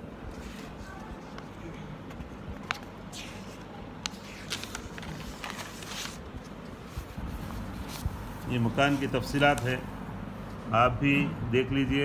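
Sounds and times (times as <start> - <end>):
paper pages rustling: 0.3 - 9.8.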